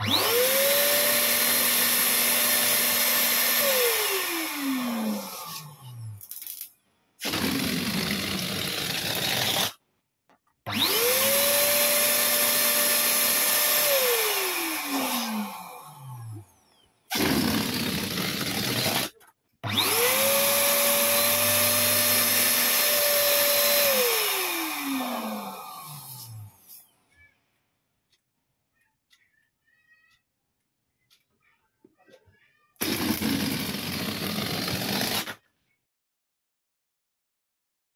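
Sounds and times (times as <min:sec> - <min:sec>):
electric balloon pump whining: 0:00.0 - 0:06.2, 0:07.2 - 0:09.8, 0:10.7 - 0:26.9, 0:32.8 - 0:35.4.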